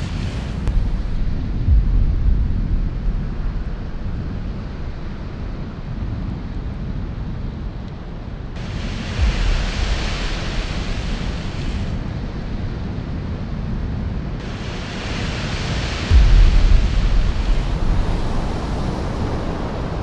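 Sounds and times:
loud hiss: 0.0 - 5.0, 8.6 - 12.6, 14.4 - 20.0
ocean surf rumbling: 0.0 - 6.5, 8.6 - 20.0
wind on microphone: 0.0 - 20.0.

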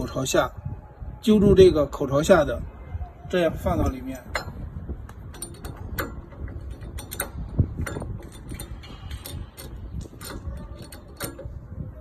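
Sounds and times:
metal parts clicking and scraping: 3.8 - 12.0.

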